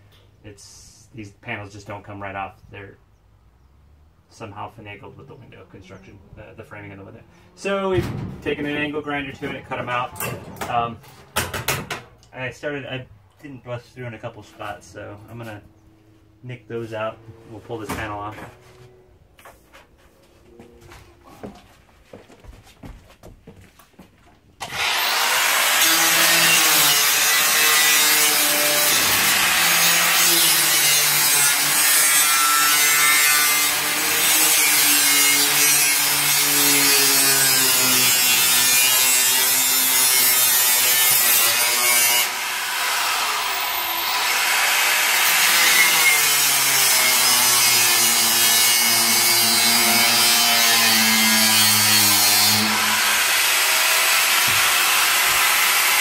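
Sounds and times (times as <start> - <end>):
angle grinder cutting metal: 24.6 - 56.0.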